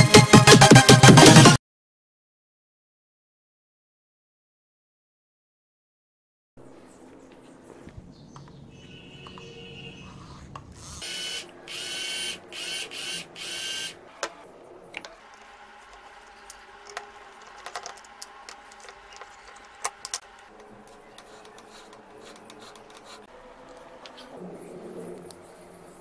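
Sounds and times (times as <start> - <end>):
electric drill whirring bursts: 10.8 - 14.0
screwdriver clicks and taps: 15.0 - 23.2.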